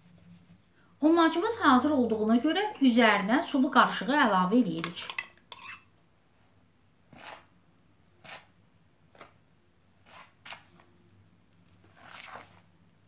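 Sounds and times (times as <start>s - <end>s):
utensil stirring dough in bowl: 4.6s - 5.8s, 7.0s - 11.0s, 11.6s - 13.0s.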